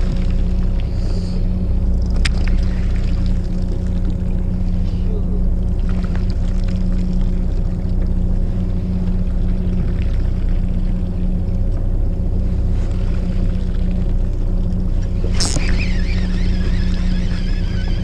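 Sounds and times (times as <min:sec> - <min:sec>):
boat engine humming: 0:00.0 - 0:18.0
sharp rattle: 0:15.3 - 0:18.0.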